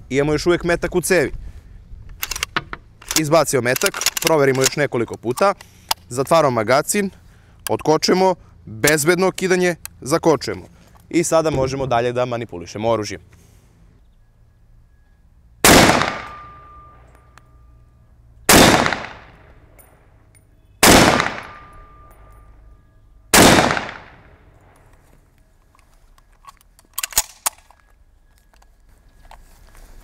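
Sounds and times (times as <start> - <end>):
sharp clicks: 2.1 - 6.4, 25.8 - 27.9
rifle shots echoing: 15.6 - 16.8, 18.5 - 19.5, 20.8 - 22.0, 23.3 - 24.8.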